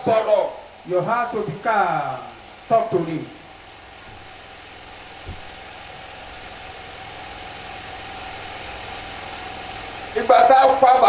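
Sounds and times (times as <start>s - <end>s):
mechanical hum: 0.0s - 10.4s
soft thump: 4.0s - 4.4s, 5.0s - 6.3s.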